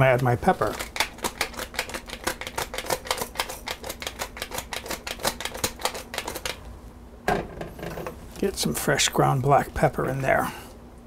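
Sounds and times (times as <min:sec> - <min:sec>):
pepper mill grinding: 0:00.0 - 0:06.6.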